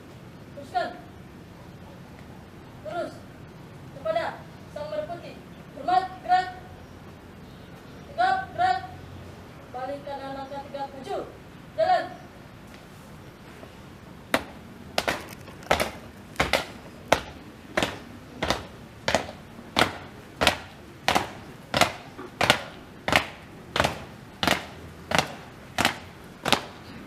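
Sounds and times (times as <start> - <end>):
marching footsteps on pavement: 12.6 - 27.0.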